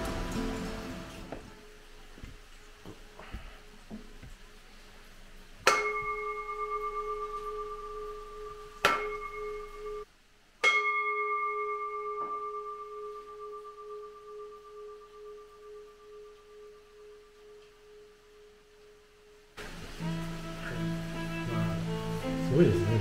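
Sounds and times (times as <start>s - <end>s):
bowl bell ringing: 5.7s - 19.5s.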